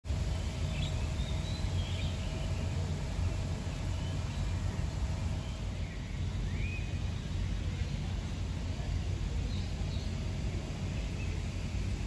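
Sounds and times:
low outdoor rumble: 0.0s - 12.0s
faint bird chirps: 0.6s - 8.2s.

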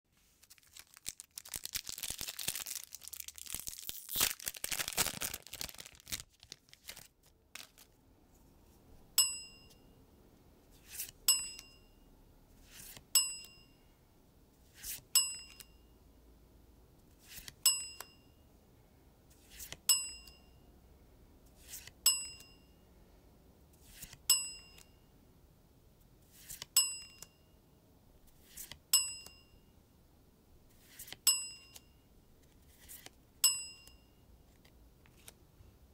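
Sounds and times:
foil wrapper crinkling and tearing: 0.3s - 8.0s
bright bell-like ding: 9.2s - 10.0s, 13.2s - 13.8s, 33.4s - 34.2s
cards sliding over each other: 10.8s - 11.2s, 12.6s - 13.0s, 14.7s - 15.0s, 17.2s - 17.6s, 19.4s - 19.8s, 21.6s - 21.9s, 23.8s - 24.2s, 26.3s - 26.7s, 28.3s - 28.8s, 30.7s - 31.2s, 32.4s - 33.1s.

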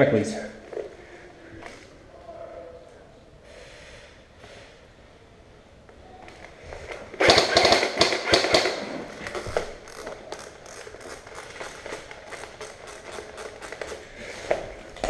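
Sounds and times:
airsoft rifle clacks and clicks: 6.3s - 15.0s.

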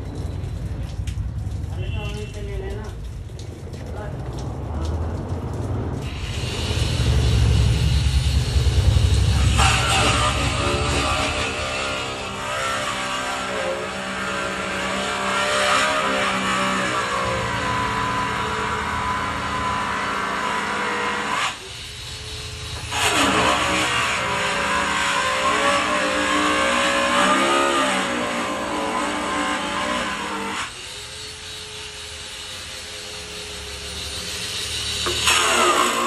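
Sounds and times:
vehicle engine revving: 22.8s - 30.2s.

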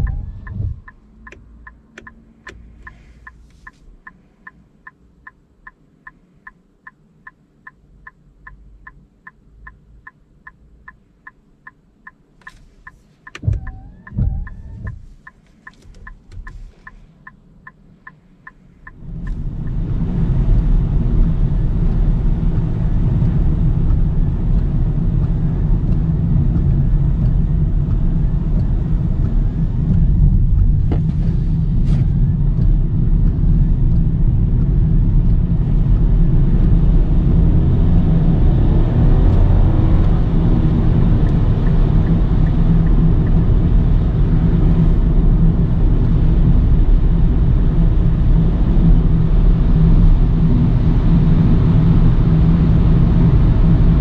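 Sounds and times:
tyres on wet road: 0.0s - 4.6s, 12.4s - 54.0s
turn-signal indicator ticking: 0.0s - 37.4s, 39.3s - 44.9s
road noise inside car cabin: 0.0s - 54.0s.

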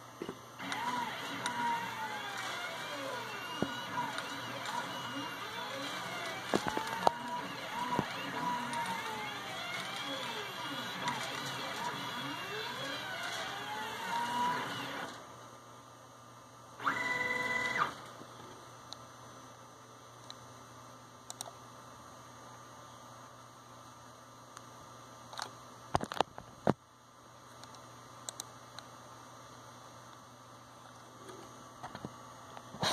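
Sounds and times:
sharp mouse clicks: 21.3s - 21.6s.

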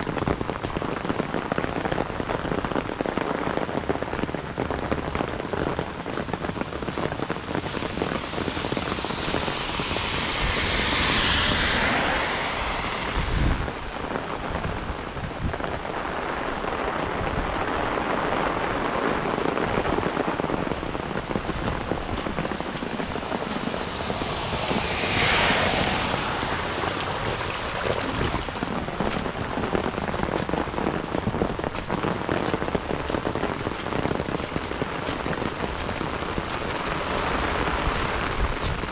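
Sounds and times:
heavy rain pouring: 0.0s - 38.9s.

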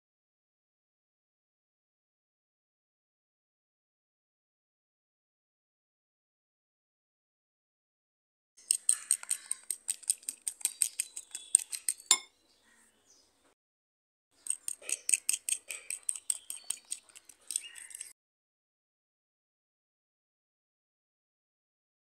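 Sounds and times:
fork clinking against bowl: 8.6s - 12.3s, 14.4s - 18.1s.

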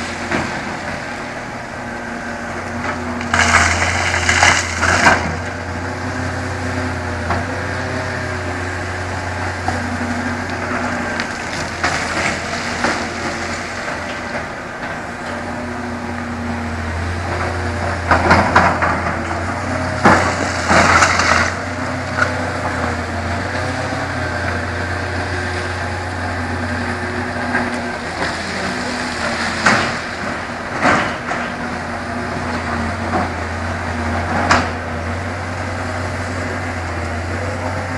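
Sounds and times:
excavator diesel engines rumbling: 0.0s - 37.9s
rock rubble crunching and clanking: 2.7s - 5.7s, 9.6s - 15.6s, 17.1s - 25.1s, 26.9s - 35.1s.

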